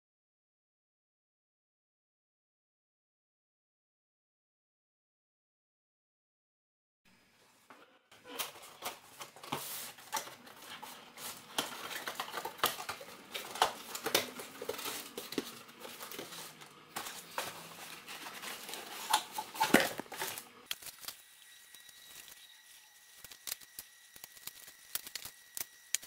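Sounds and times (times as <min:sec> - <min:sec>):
packing rustling and crinkling: 0:08.3 - 0:21.1.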